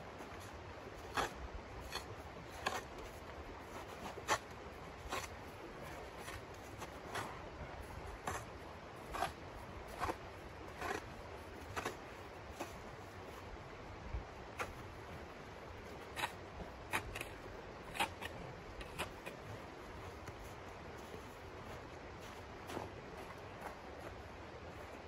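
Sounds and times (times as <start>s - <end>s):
shovel scraping crusty snow: 0.3s - 7.4s, 8.2s - 12.8s.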